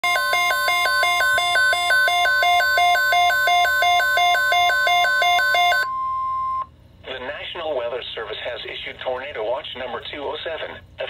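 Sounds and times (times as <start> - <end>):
steady alarm tone: 0.0 - 6.6.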